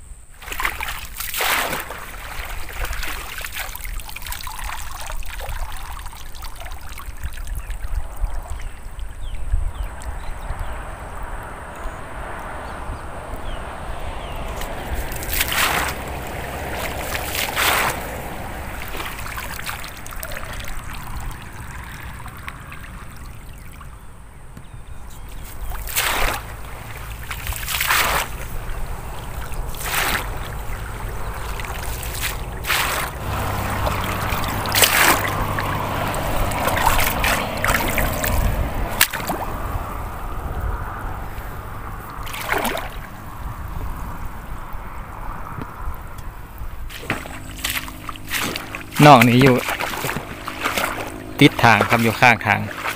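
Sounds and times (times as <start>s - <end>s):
pond water sloshing and splashing: 0.3s - 11.5s, 13.3s - 45.9s, 46.5s - 52.9s
water trickling through mesh: 0.4s - 10.7s, 14.5s - 24.0s, 25.1s - 39.5s, 46.9s - 52.9s.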